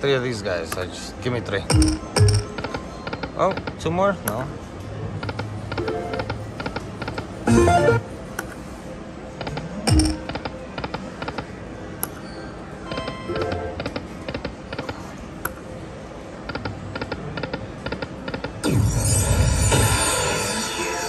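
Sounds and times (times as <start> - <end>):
slot machine reels clicking: 5.2 - 8.0, 9.9 - 11.0
falling electronic tone: 7.5 - 8.1.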